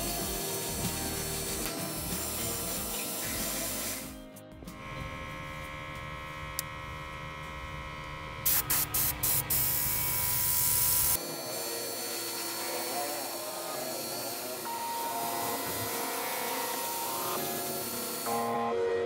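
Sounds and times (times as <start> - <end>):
airbrush spraying: 0.0 - 4.2, 8.4 - 18.4.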